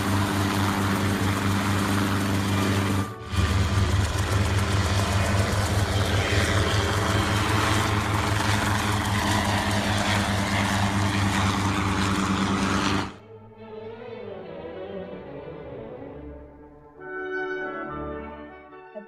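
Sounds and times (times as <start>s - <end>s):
helicopter rotor and engine: 0.0s - 13.3s.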